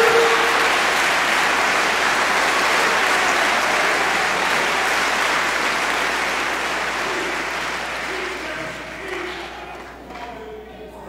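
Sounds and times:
large audience applauding: 0:00.0 - 0:10.2.

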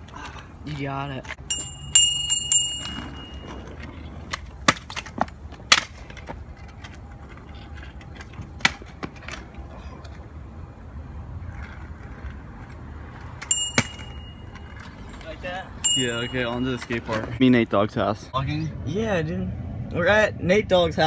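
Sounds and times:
scooter deck clacking on pavement: 0:00.0 - 0:10.2, 0:11.4 - 0:17.4
scooter wheels rolling on asphalt: 0:00.0 - 0:18.3
handlebar bell ringing: 0:01.4 - 0:03.8, 0:13.4 - 0:17.4.

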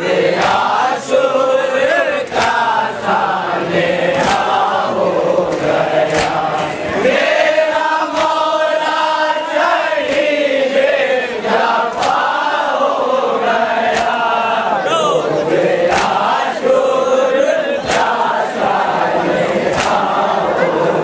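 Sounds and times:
men chanting a lament: 0:00.0 - 0:21.0
sharp slaps on the beat: 0:00.3 - 0:01.2, 0:02.2 - 0:03.2, 0:03.8 - 0:10.8, 0:11.5 - 0:14.6, 0:15.6 - 0:16.8, 0:17.8 - 0:20.4.

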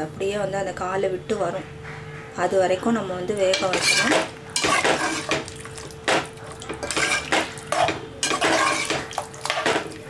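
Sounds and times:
metal spoon scraping cooking pot: 0:03.4 - 0:10.0.

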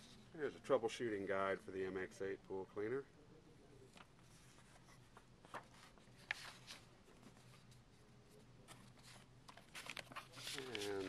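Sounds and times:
pages turning: 0:03.9 - 0:07.8, 0:08.7 - 0:11.0
small paper clicks: 0:09.5 - 0:11.0.

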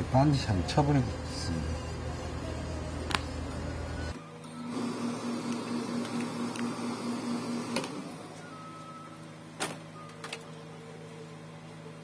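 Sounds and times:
steam iron hissing: 0:04.7 - 0:08.3.

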